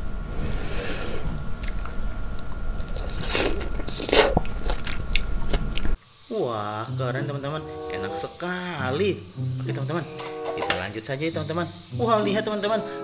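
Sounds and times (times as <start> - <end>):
steady low hum: 0.0 - 13.0
person chewing berries: 1.6 - 6.0.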